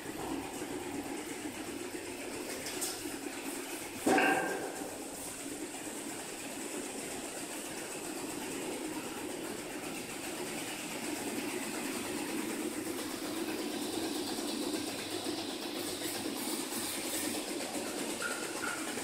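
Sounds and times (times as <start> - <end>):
tube mill mechanical drone: 0.0 - 19.0.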